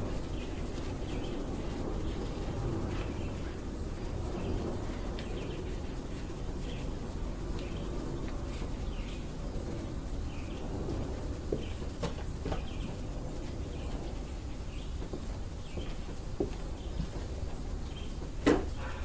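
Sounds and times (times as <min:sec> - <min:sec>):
bird chirping: 0:17.8 - 0:19.0.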